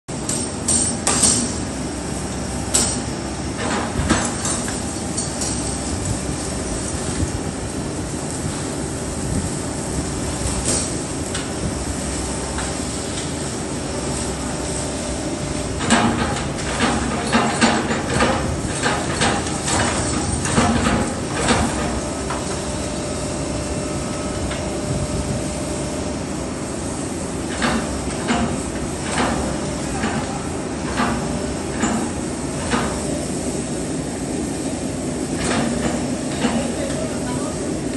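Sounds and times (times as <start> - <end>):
excavator machine noise: 0.1 - 37.9
excavator rumbling: 13.9 - 26.6, 27.3 - 33.0.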